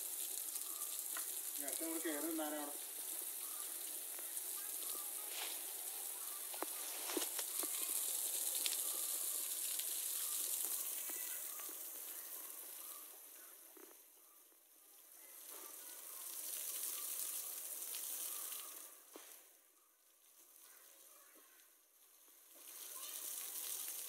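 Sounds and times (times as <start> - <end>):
water dripping and splashing: 0.0 - 14.0, 15.0 - 24.0
water spray hissing: 0.0 - 14.0, 15.2 - 19.6, 22.1 - 24.0.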